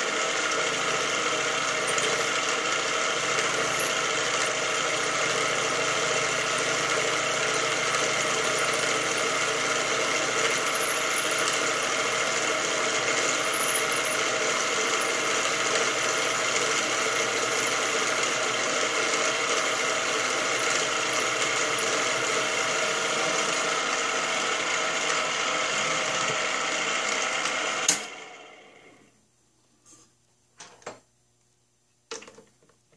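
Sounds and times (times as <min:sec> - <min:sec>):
drill press running: 0:00.0 - 0:29.1.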